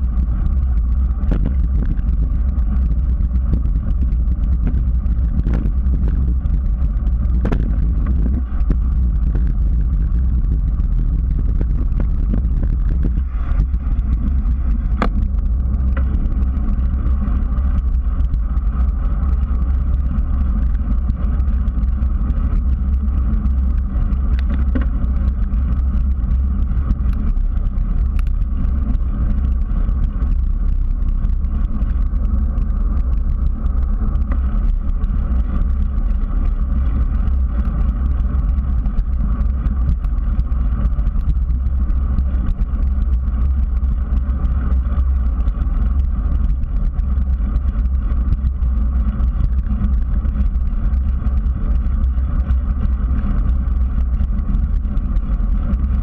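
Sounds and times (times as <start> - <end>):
tyre road noise on asphalt: 0.0 - 56.0
wind buffeting: 0.0 - 56.0.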